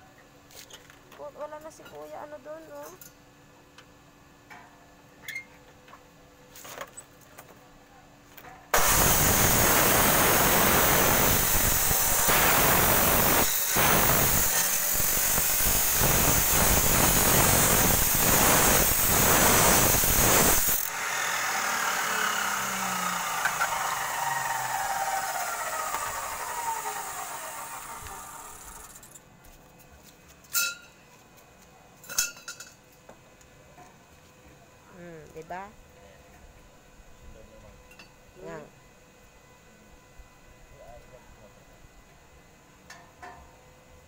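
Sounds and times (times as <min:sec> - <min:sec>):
saw disc spinning down whine: 0:08.8 - 0:29.0
cut-off saw grinding through steel: 0:08.8 - 0:29.1.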